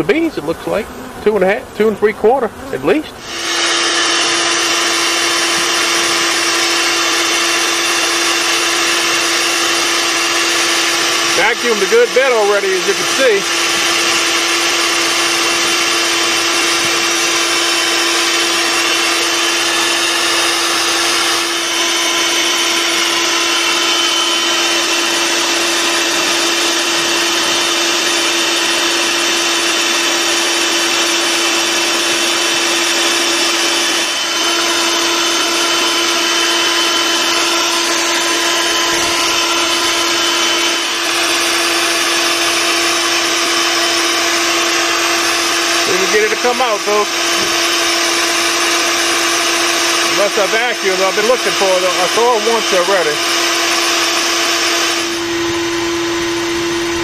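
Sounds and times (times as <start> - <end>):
vacuum motor hum: 0.0 - 57.0.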